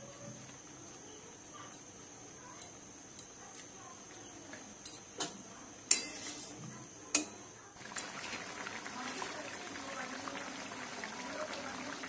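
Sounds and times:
spatula clinking on steel pan: 0:05.9 - 0:06.3, 0:07.1 - 0:07.4.

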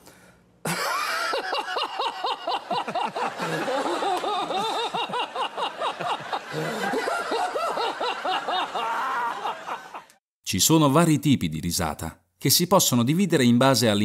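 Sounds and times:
man laughing: 0:00.7 - 0:10.2.

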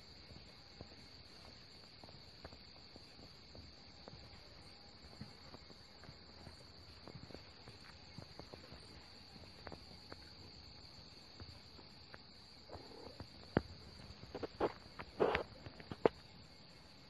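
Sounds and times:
faint ticks: 0:00.0 - 0:16.9
crickets trilling: 0:00.0 - 0:17.0.

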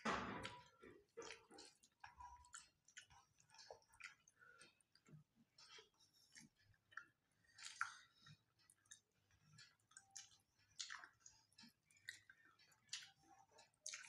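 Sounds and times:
chewing clicks and smacks: 0:00.4 - 0:14.0.

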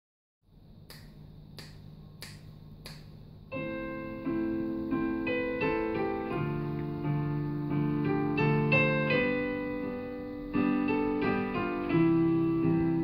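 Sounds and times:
electric piano chords over bass: 0:03.3 - 0:13.0.

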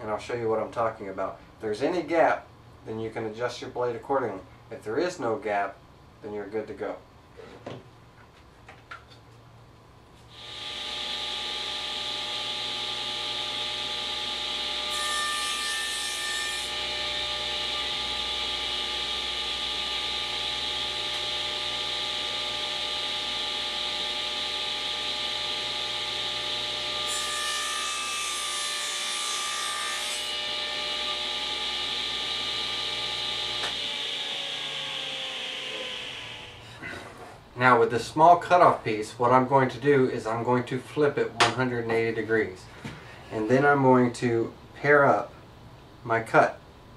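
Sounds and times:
saw motor winding down: 0:10.3 - 0:14.9, 0:16.7 - 0:27.1, 0:30.4 - 0:36.7
saw cutting through board: 0:10.3 - 0:36.6
table saw running: 0:10.3 - 0:36.7.

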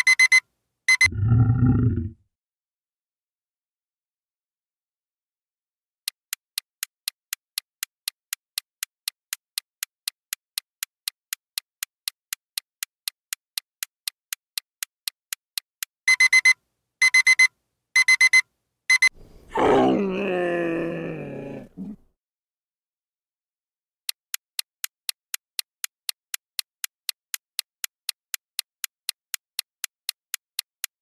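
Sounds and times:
alarm clock beeping: 0:00.0 - 0:01.1, 0:16.1 - 0:19.1
clock ticking: 0:00.0 - 0:01.1, 0:06.0 - 0:19.1, 0:24.1 - 0:30.9
camel groaning: 0:01.1 - 0:02.2, 0:19.5 - 0:22.0.

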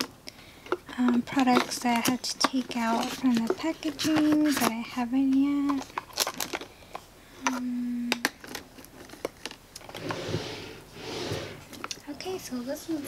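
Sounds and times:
makeup items clicking: 0:00.0 - 0:09.9
drawer sliding on metal runners: 0:10.0 - 0:11.7.

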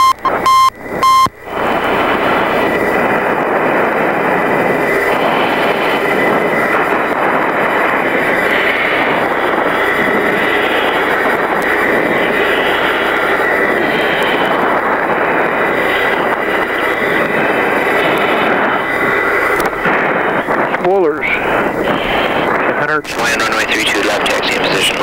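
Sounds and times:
short high beeps: 0:00.0 - 0:01.4
jet cockpit engine and airflow noise: 0:00.0 - 0:25.0.

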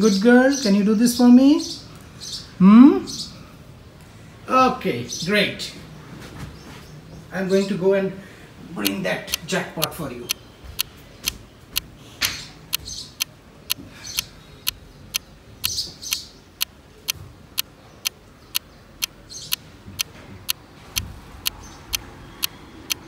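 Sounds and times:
clock ticking: 0:08.8 - 0:11.9, 0:17.6 - 0:23.0.

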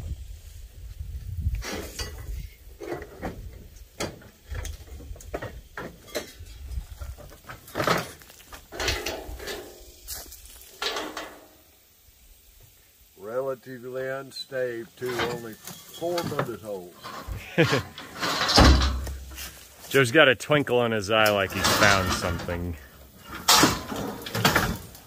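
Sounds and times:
footsteps in dry brush: 0:09.9 - 0:10.8, 0:19.0 - 0:20.0
scrap metal clinking: 0:15.0 - 0:19.6, 0:21.5 - 0:25.0.

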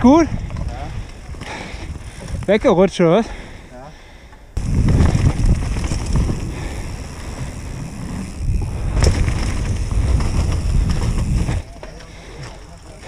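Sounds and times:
wind buffeting microphone: 0:00.0 - 0:02.7, 0:04.6 - 0:11.8
bike tyres and frame rattling: 0:00.0 - 0:13.0.

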